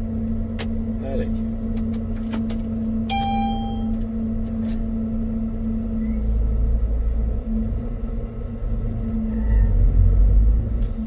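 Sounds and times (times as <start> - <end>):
vehicle engine rumbling: 0.0 - 11.0
brief high tone: 3.1 - 4.0.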